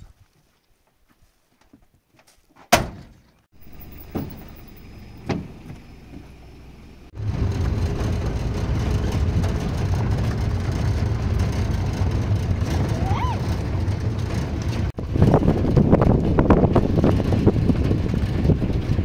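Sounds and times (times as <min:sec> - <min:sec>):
truck door slamming: 0:02.7 - 0:06.3
engine running: 0:03.6 - 0:19.0
truck driving on gravel: 0:03.6 - 0:19.0.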